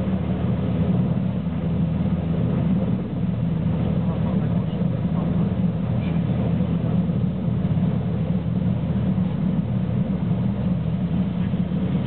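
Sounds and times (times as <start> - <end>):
helicopter rotor and engines rumbling: 0.0 - 12.0.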